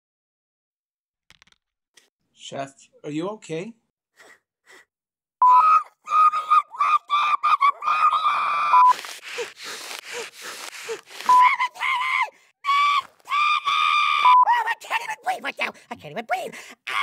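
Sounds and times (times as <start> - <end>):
wheezy gasping breaths: 4.1 - 5.0, 8.9 - 11.4.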